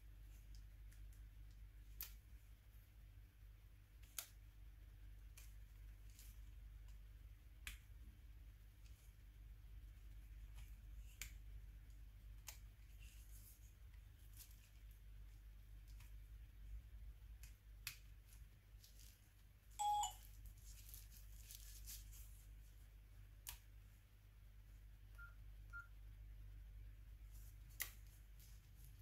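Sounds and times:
phone electronic beep: 19.8 - 20.2.

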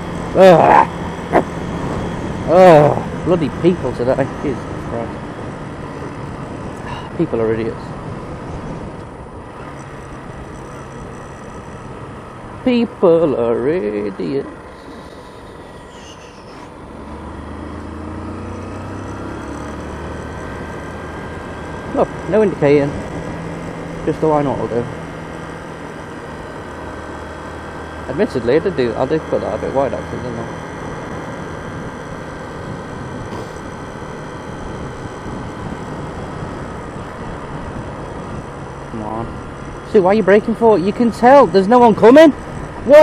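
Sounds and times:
wind rushing over microphone: 0.0 - 12.7, 30.5 - 43.0
motorcycle engine running: 0.0 - 43.0.

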